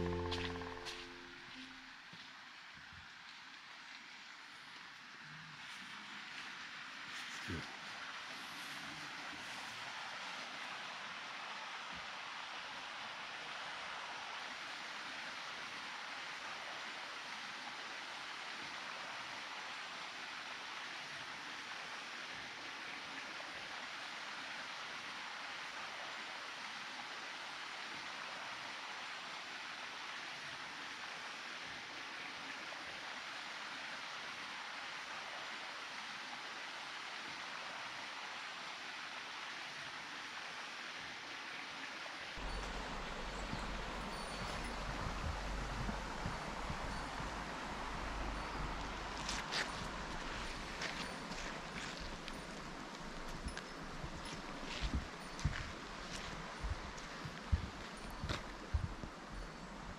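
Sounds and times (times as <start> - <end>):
flowing stream water: 0.0 - 59.9.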